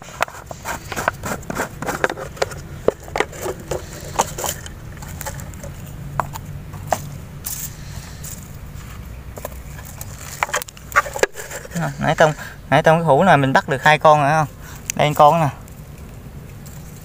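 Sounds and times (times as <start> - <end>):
clicks and scrapes on leaf litter: 0.0 - 12.4
low steady hum: 0.0 - 17.0.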